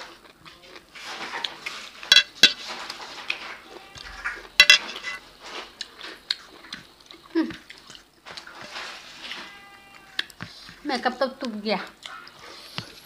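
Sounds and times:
clinks against a metal plate: 2.1s - 2.6s, 4.6s - 5.2s.

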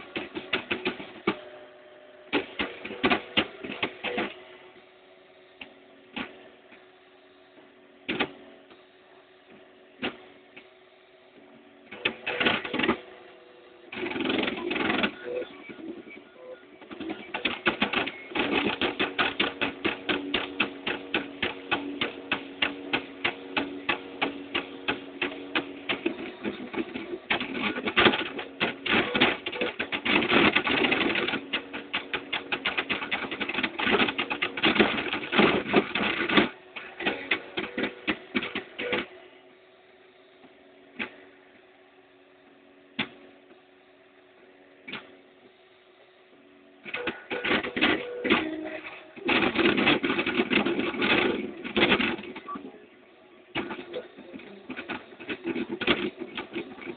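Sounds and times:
faint hum: 0.0s - 56.9s
printer motors clicking and whining: 0.0s - 56.9s.

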